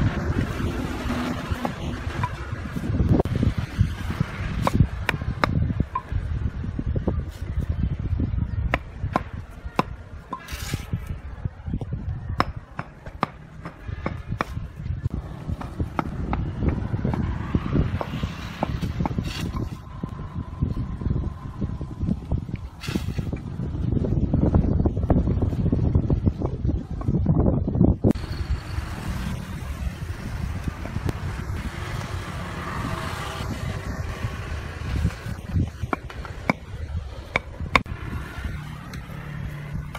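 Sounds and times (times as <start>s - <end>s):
road traffic passing: 0.0s - 39.9s
brief scrape: 10.4s - 11.1s, 19.2s - 19.8s, 22.8s - 23.4s.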